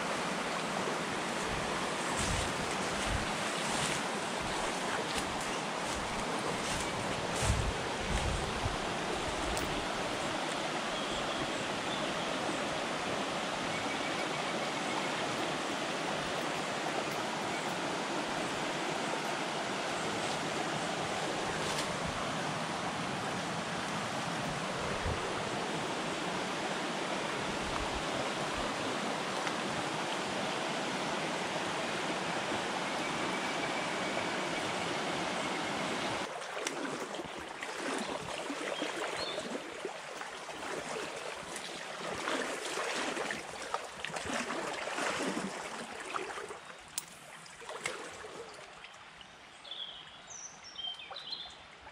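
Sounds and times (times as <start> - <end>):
stream running over stones: 0.0 - 49.7.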